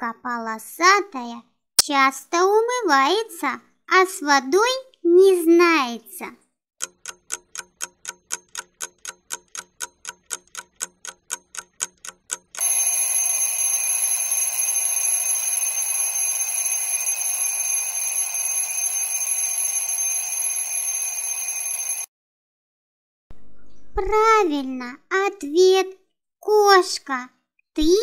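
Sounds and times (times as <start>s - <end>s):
clock ticking: 6.8s - 20.2s
alarm bell ringing: 12.6s - 22.1s.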